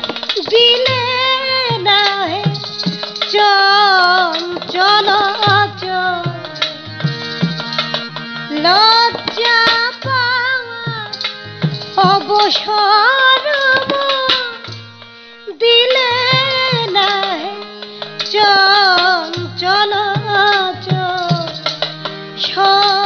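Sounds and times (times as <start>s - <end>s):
hand drum strokes: 0.0s - 12.8s
harmonium chords: 0.0s - 23.0s
woman singing: 0.4s - 6.6s, 8.5s - 11.2s, 12.0s - 14.7s, 15.5s - 23.0s.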